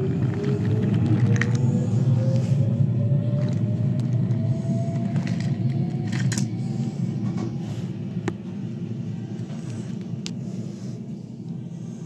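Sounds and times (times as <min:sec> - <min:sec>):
toy train wheels rumbling: 0:00.0 - 0:02.6, 0:03.3 - 0:07.5.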